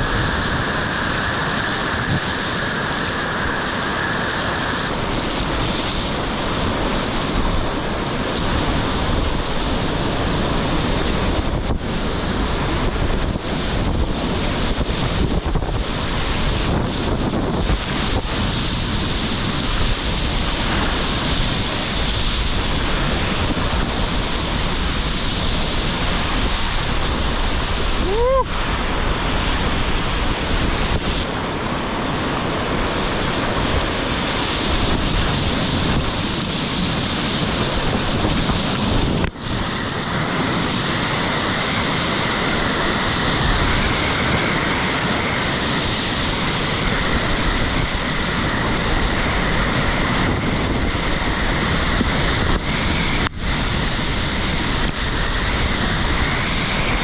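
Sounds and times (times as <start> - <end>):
wind buffeting microphone: 0.0 - 57.0
whitewater rapids rushing and splashing: 15.1 - 39.3.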